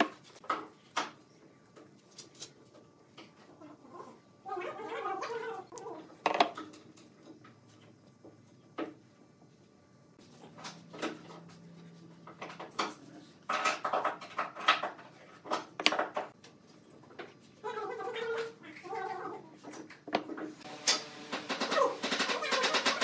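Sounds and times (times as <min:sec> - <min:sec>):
wooden blocks knocking and clacking: 0:06.2 - 0:06.8, 0:12.3 - 0:16.4.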